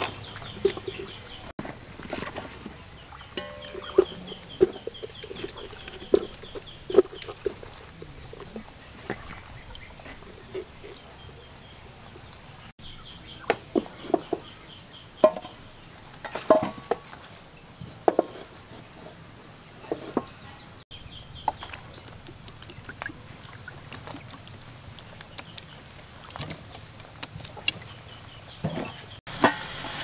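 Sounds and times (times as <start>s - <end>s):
chickens clucking: 0.0s - 12.4s
knocks against metal pot: 3.4s - 4.2s, 15.2s - 15.6s.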